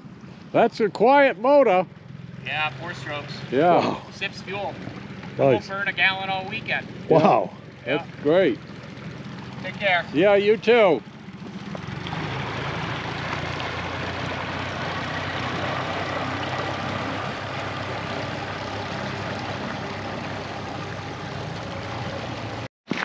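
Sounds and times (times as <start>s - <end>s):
outboard motors running: 0.0s - 23.0s.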